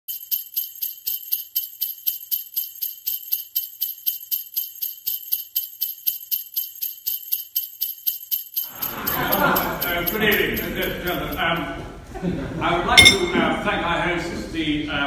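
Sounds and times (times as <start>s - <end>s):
sleigh bells jingling: 0.1s - 11.6s.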